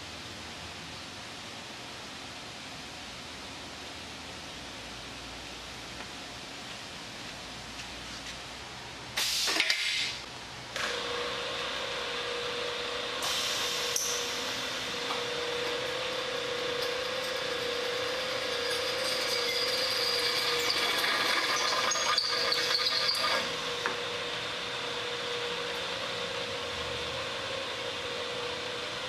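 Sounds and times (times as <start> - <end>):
drilling machine motor whine: 10.8 - 26.6
drill bit cutting metal: 13.9 - 23.6.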